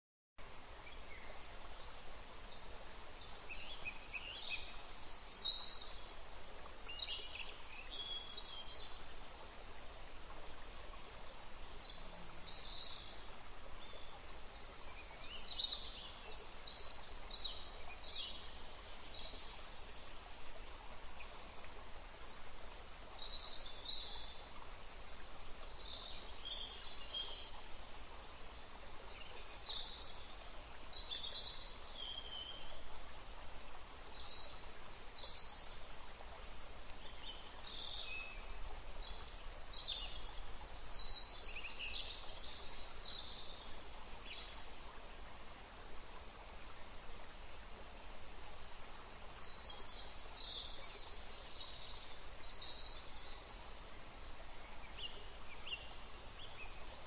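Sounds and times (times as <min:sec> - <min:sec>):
steady background hiss: 0:00.4 - 0:57.0.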